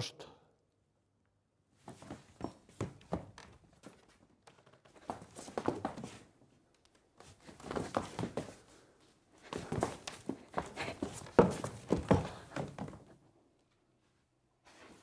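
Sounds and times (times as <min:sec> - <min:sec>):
footsteps on stage floor: 0:09.4 - 0:13.1.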